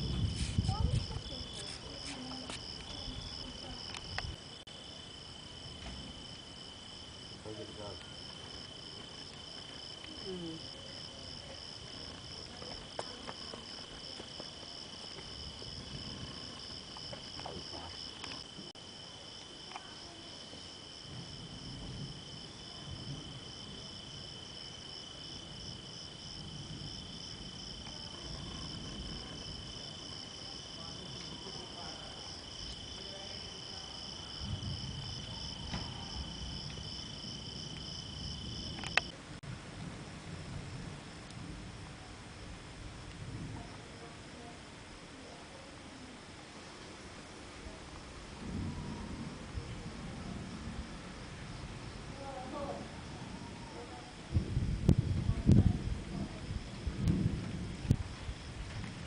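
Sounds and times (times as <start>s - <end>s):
crickets chirring: 0.0s - 39.2s.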